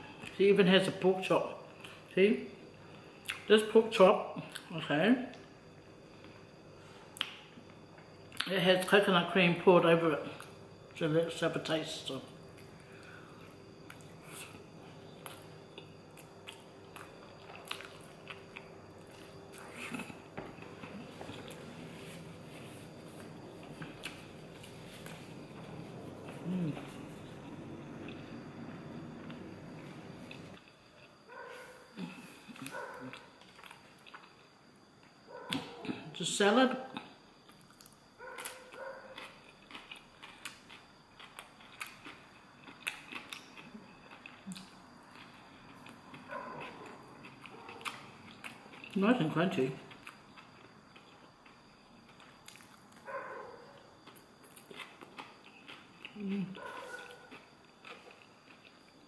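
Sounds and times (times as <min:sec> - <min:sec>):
faint steady hum: 0:00.0 - 0:59.0
close-up chewing: 0:12.6 - 0:34.5, 0:37.5 - 0:49.0, 0:49.9 - 0:59.0.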